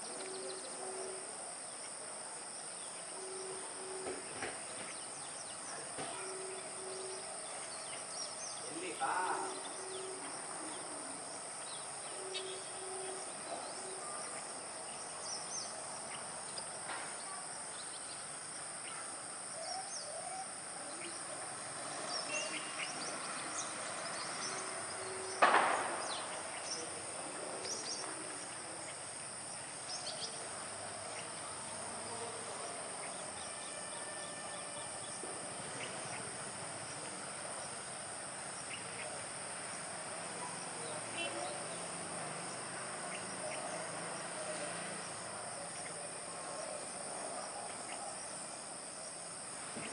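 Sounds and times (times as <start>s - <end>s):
high-pitched insect drone: 0.0s - 49.9s
sudden sharp knock: 25.4s - 26.1s.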